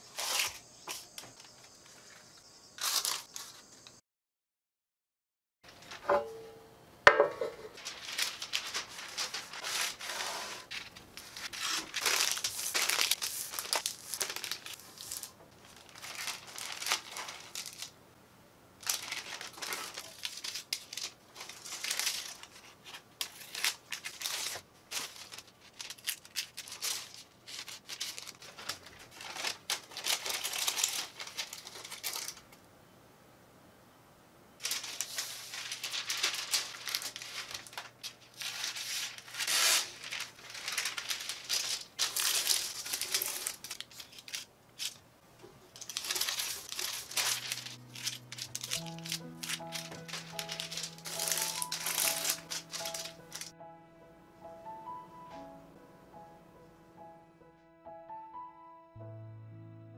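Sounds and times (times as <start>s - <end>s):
baking paper crinkling: 0.0s - 2.2s, 2.8s - 4.0s, 5.7s - 6.0s, 7.6s - 18.0s, 18.8s - 32.6s, 34.6s - 53.5s
scissors cutting paper: 19.1s - 32.4s, 38.4s - 45.0s, 45.8s - 53.5s.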